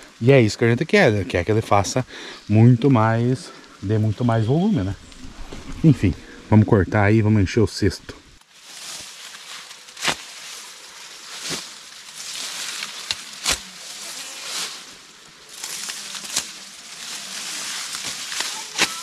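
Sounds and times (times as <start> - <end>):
grass leaves rustling: 0.0 - 19.0
stalks snapping: 8.4 - 19.0.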